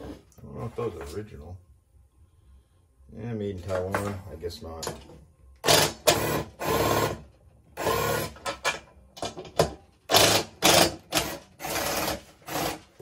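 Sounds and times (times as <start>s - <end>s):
power drill spinning in bursts: 5.6s - 7.2s, 7.8s - 8.4s, 10.1s - 13.0s.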